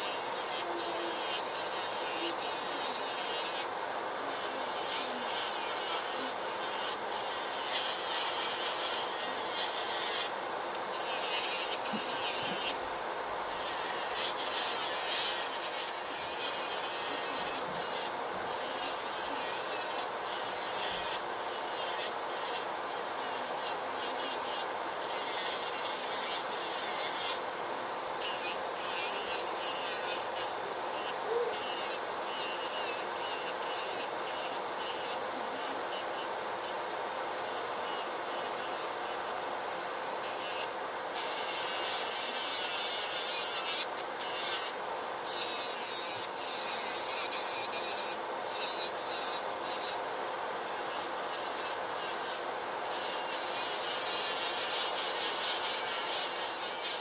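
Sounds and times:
nail drill grinding: 10.9s - 12.8s.

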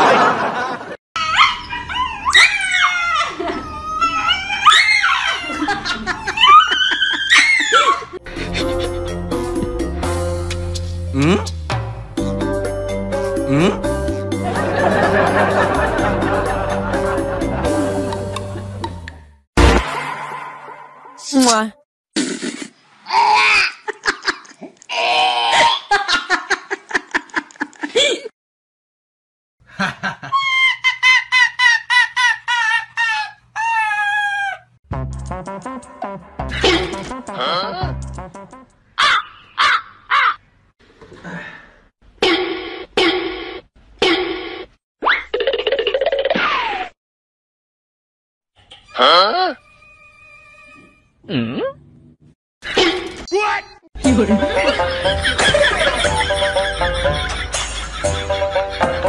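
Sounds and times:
dog howling and yelping: 1.2s - 8.2s, 33.6s - 34.7s
person laughing and giggling: 5.3s - 9.7s, 13.5s - 18.9s, 23.6s - 24.8s, 25.6s - 28.3s, 36.5s - 37.9s, 54.0s - 59.0s.

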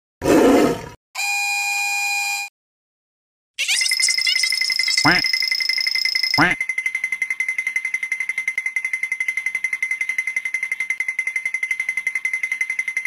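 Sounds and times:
fast electronic pulsing: 3.6s - 7.0s.

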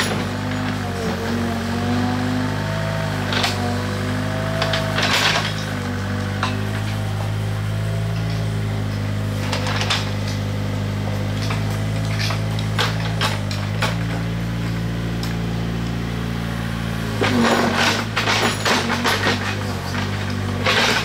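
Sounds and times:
diesel engine running: 0.0s - 21.0s
hand tools scraping gravel: 17.1s - 21.0s.

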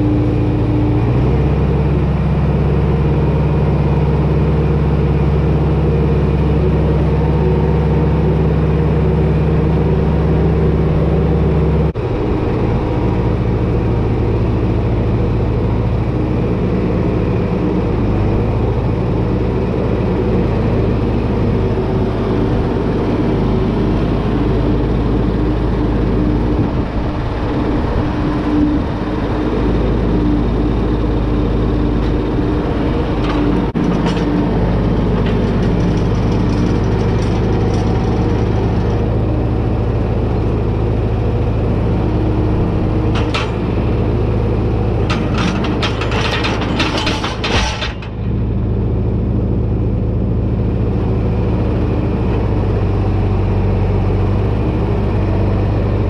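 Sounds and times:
tractor diesel engine running: 0.0s - 56.0s
metal clanks and clicks: 33.2s - 39.1s, 43.1s - 43.8s, 45.0s - 48.4s.

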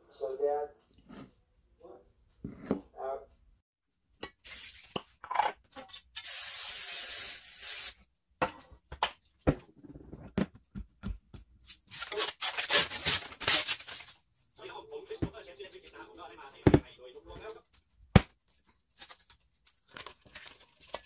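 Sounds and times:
cooking spray hissing: 6.2s - 8.0s
paper wrapper tearing: 11.7s - 14.2s, 18.9s - 21.0s.

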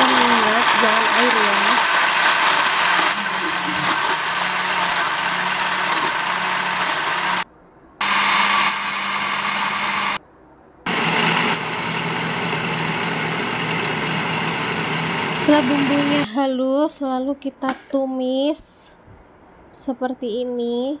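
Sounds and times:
blender running: 0.0s - 7.4s, 8.0s - 10.2s, 10.9s - 16.3s.

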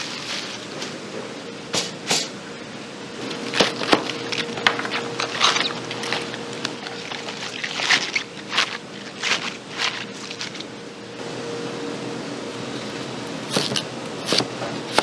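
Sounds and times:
rustling: 3.5s - 10.7s.

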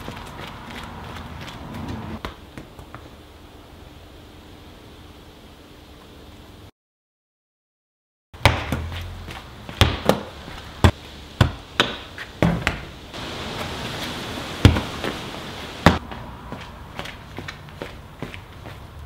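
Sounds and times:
ball bouncing on concrete: 0.0s - 3.1s, 8.4s - 13.0s, 14.6s - 15.2s.

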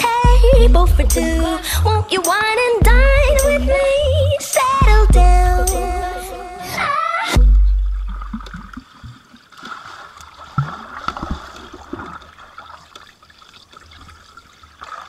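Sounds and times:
deep low boom: 0.3s - 1.9s, 2.8s - 3.8s, 4.8s - 6.0s, 7.4s - 8.7s
underwater gurgling: 7.4s - 14.9s.

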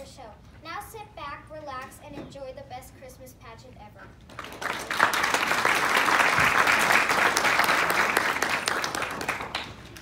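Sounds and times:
audience applauding: 4.3s - 10.0s.

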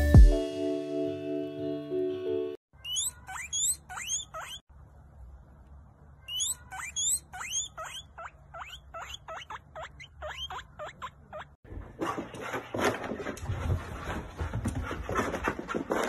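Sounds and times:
guinea pig wheeking: 2.8s - 4.7s, 6.2s - 11.6s.

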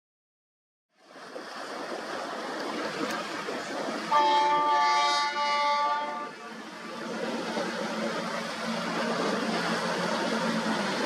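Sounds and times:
loud multi-tone horn blast: 4.1s - 6.4s
steady rushing noise: 6.3s - 11.0s.

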